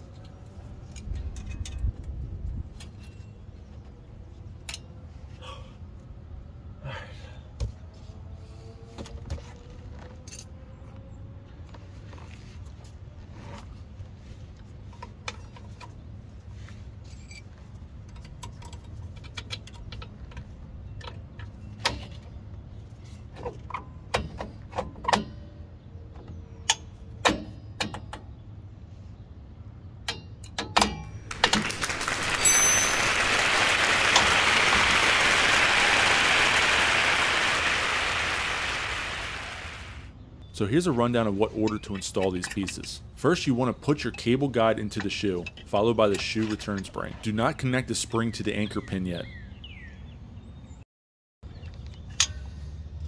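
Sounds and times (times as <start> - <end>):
loud rushing noise: 31.3 - 40.1.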